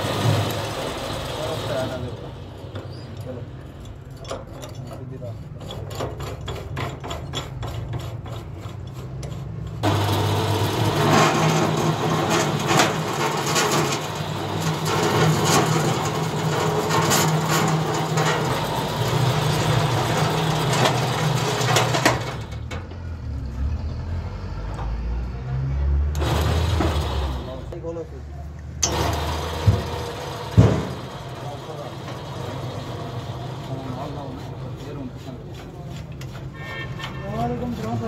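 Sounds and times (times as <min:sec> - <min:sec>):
drilling rig motor humming: 0:09.8 - 0:22.6
drill knocking into ground: 0:28.8 - 0:31.2.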